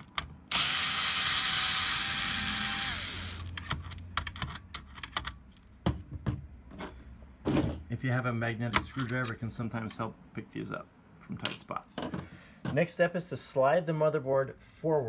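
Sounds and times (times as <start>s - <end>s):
power screwdriver whine: 0.5s - 3.6s.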